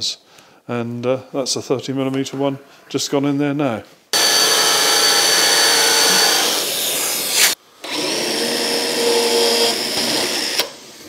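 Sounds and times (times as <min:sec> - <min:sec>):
cordless drill boring into wood: 0:04.2 - 0:10.8.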